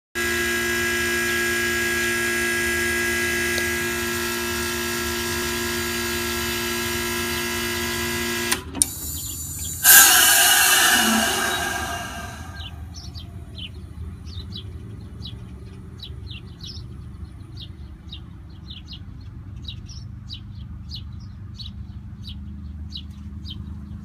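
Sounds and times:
compressor humming: 8.8s - 12.8s
rushing noise burst: 8.9s - 12.9s.

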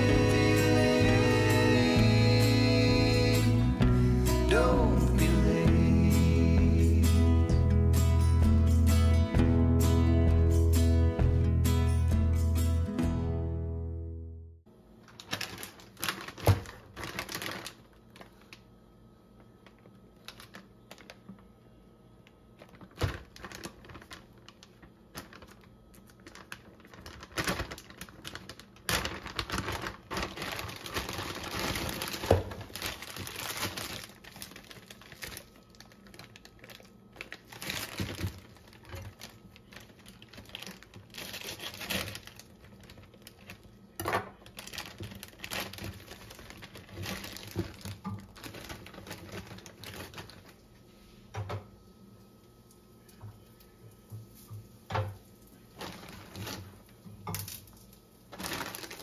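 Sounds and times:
plastic and paper bag crinkling: 14.9s - 21.6s, 22.4s - 50.9s, 55.6s - 59.0s.

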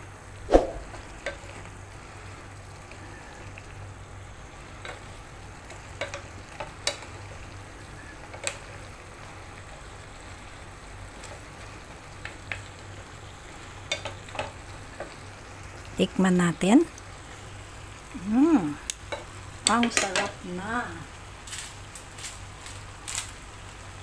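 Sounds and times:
food sizzling in a pan: 0.1s - 24.0s.

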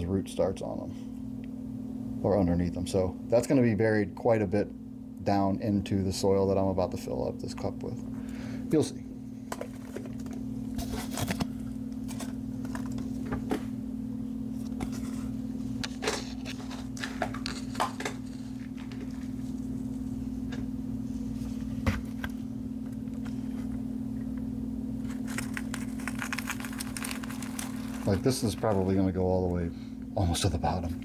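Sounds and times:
steady low hum: 0.0s - 31.0s
potting soil rustling: 25.1s - 29.6s.

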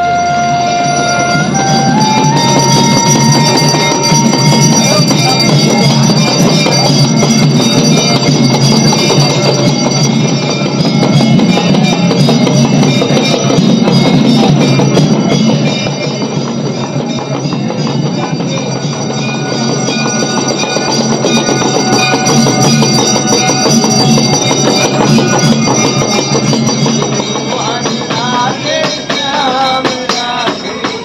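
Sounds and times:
drum beat: 0.0s - 31.0s
hand cymbals clashing: 0.0s - 31.0s
person singing: 27.4s - 31.0s.

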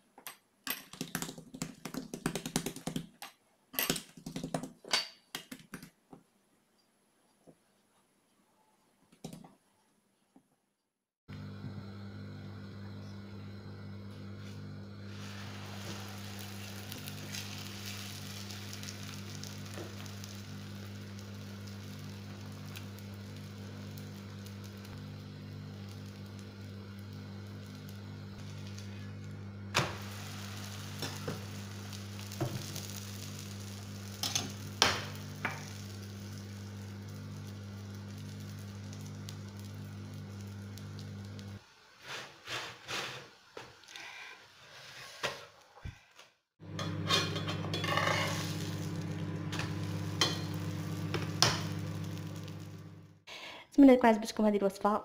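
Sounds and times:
flatbread sizzling in oil: 14.2s - 43.2s, 46.6s - 53.0s
low hum: 46.6s - 53.2s.

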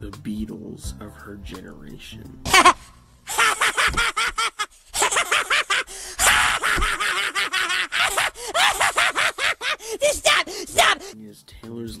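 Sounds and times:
cartoon children's voices: 9.9s - 11.1s.

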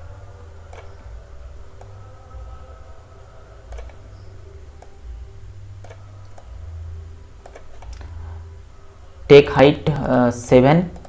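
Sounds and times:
low electrical hum: 0.0s - 11.0s
computer mouse clicking: 3.7s - 4.0s, 7.4s - 8.0s.

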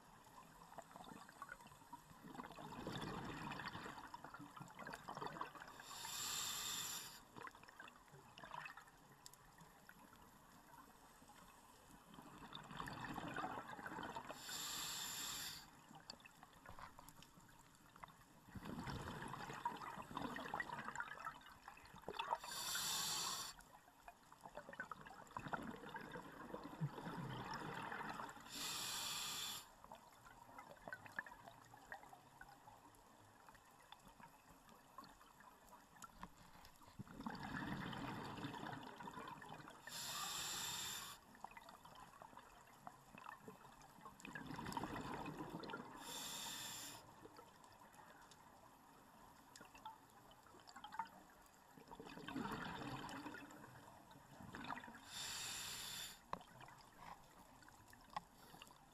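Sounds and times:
exhaled air bubbling: 2.2s - 6.8s, 12.3s - 15.4s, 18.5s - 23.5s, 24.6s - 29.6s, 37.0s - 41.0s, 44.2s - 46.8s, 51.9s - 56.0s
regulator inhalation hiss: 5.8s - 7.2s, 14.4s - 15.7s, 22.4s - 23.6s, 28.5s - 29.7s, 39.9s - 41.2s, 46.0s - 47.0s, 55.1s - 56.2s.

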